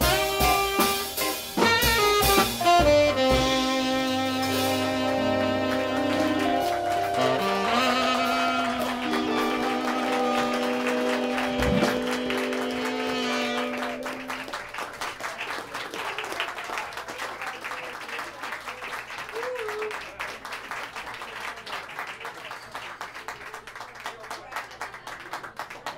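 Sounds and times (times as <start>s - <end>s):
live jazz band playing: 0.0s - 14.9s
audience applauding: 4.4s - 25.9s.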